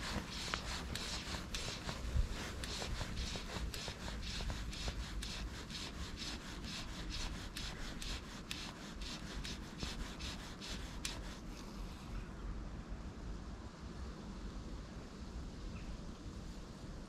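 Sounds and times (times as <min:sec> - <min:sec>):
fly line rasping through rod guides: 0:00.0 - 0:11.4.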